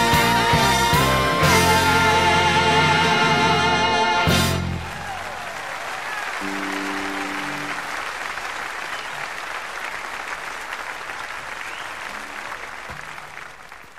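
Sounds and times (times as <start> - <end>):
audience applauding: 4.4 - 13.9.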